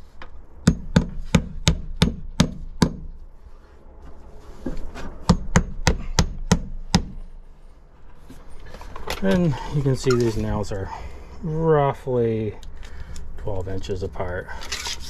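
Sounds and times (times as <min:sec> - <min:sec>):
hammer driving nails: 0:00.6 - 0:03.1, 0:05.2 - 0:07.2.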